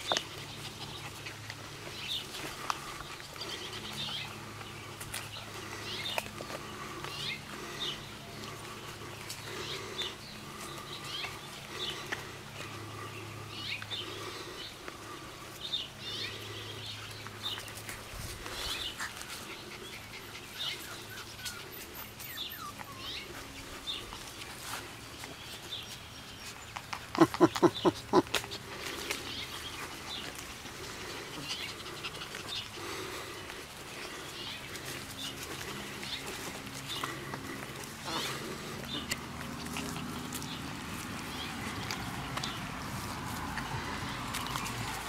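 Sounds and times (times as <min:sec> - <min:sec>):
puppies whining and yipping: 0:18.6 - 0:24.7, 0:29.2 - 0:32.8.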